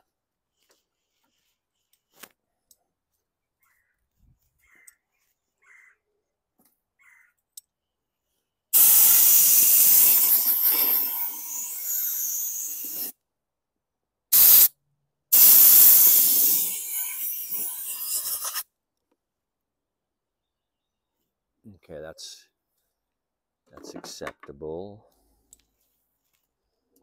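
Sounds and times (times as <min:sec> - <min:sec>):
compressed air blow gun blasting: 0:08.8 - 0:13.1, 0:14.4 - 0:14.7, 0:15.3 - 0:18.6.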